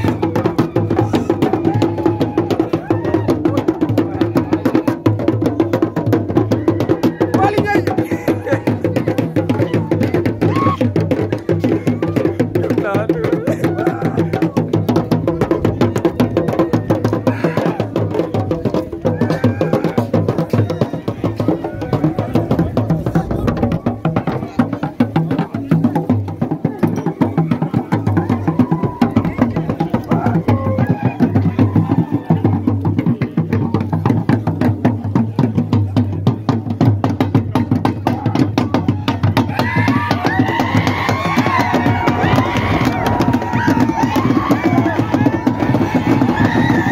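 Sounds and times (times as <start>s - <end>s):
fast dance drumming: 0.0s - 46.9s
voices singing: 38.1s - 46.9s.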